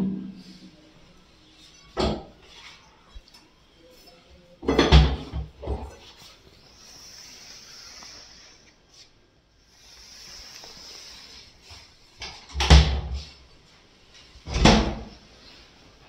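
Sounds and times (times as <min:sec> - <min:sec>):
faint steady hiss: 0:05.6 - 0:16.0
cabinet doors opening: 0:14.5 - 0:15.1.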